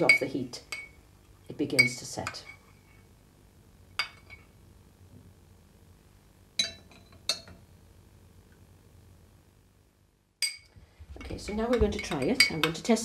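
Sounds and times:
utensil clinking on glass and pot: 0.1 - 1.0, 6.6 - 7.6, 10.4 - 13.0.

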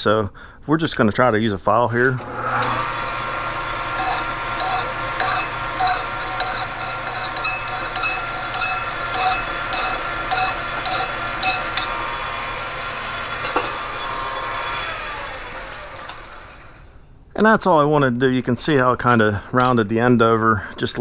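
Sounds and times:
lathe humming: 1.9 - 16.9
file rasping on metal: 2.6 - 14.0.

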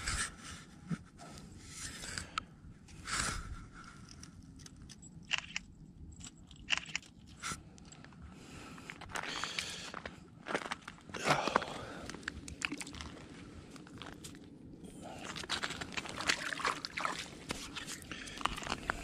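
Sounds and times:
sharp clicks: 4.6 - 5.7, 6.6 - 7.2.

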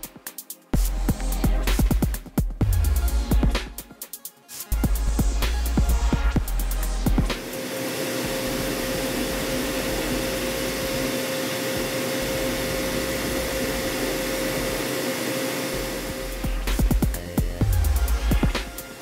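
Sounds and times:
air coolant hissing: 4.6 - 19.0.

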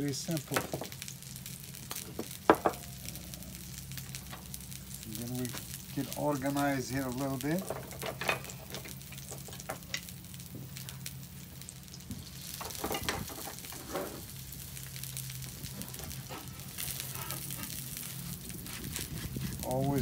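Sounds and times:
fish sizzling in a skillet: 0.0 - 20.0.

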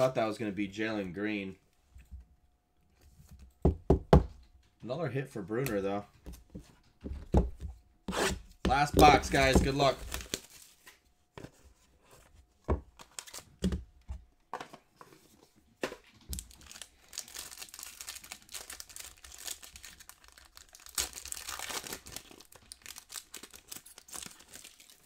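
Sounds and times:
foil card pack crinkling and tearing: 9.0 - 11.0, 13.0 - 13.6, 16.2 - 25.0.

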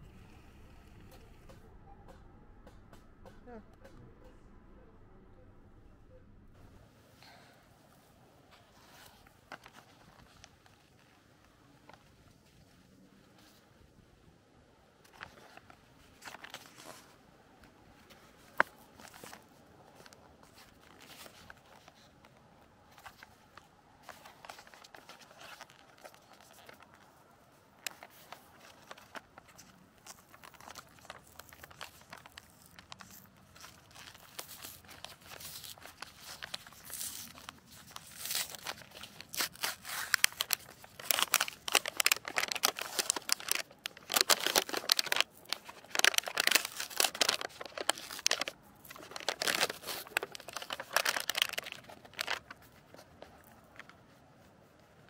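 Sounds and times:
plastic packaging crinkling: 17.9 - 54.0.

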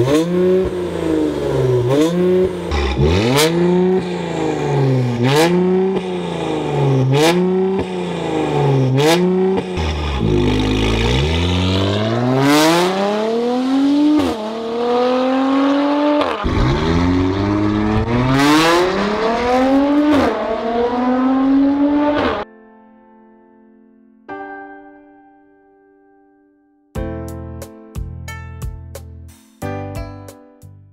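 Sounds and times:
car engine revving: 0.0 - 22.4
exhaust cracks: 16.4 - 20.2.

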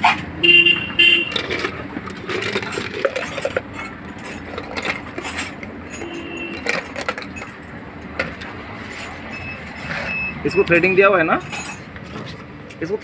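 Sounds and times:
metal parts clinking on stone: 1.2 - 9.9, 11.4 - 12.0.

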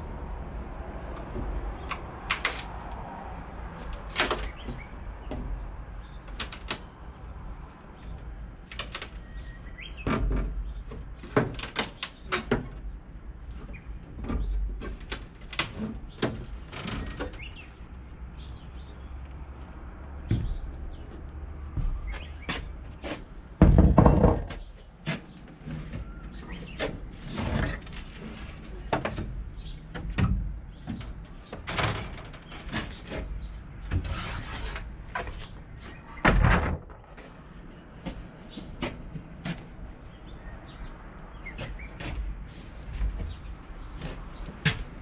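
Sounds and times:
heavy thumps: 20.2 - 22.8.

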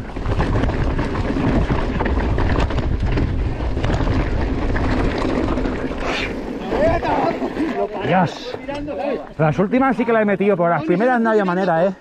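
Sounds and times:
wind buffeting microphone: 0.0 - 7.8
bike rattling over bumps: 0.0 - 9.5
bike tyres grinding over rocks: 0.0 - 9.6.

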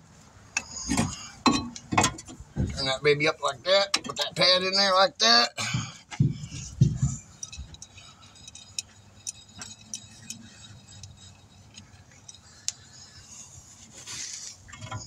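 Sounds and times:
hand tools clinking: 6.3 - 13.4
rustling scrape: 12.9 - 15.0.

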